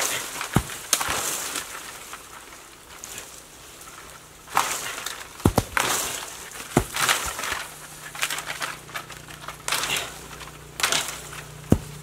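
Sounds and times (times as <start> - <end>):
palm fronds rustling: 0.0 - 12.0
coconuts thudding on ground: 0.2 - 1.7, 4.5 - 12.0.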